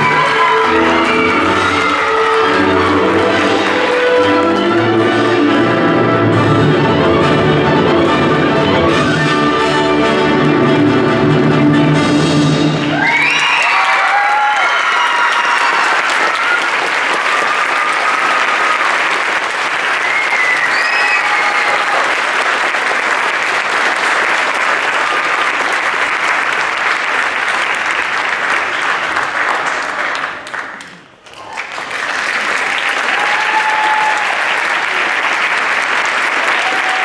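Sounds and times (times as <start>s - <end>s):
audience cheering: 0.0s - 4.4s, 12.8s - 26.1s, 31.4s - 37.0s
audience applauding: 0.0s - 5.2s, 12.8s - 37.0s.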